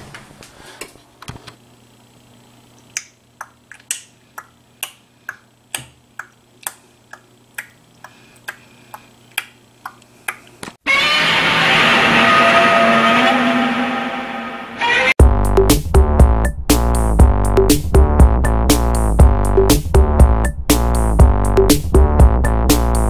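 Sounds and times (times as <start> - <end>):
faint steady hum: 0.1 - 10.8.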